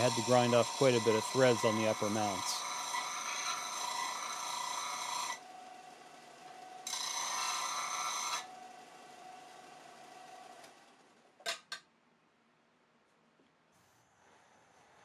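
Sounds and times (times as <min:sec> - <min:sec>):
sander humming: 0:00.0 - 0:03.2
disc sander grinding steel: 0:00.0 - 0:05.4, 0:06.8 - 0:08.5.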